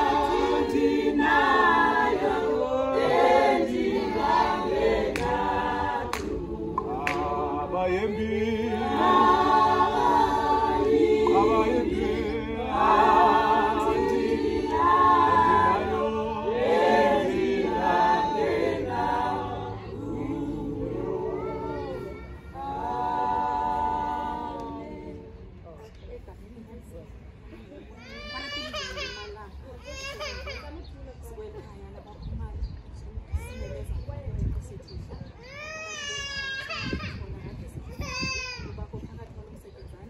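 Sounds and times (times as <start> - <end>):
women singing unaccompanied: 0.0 - 25.8.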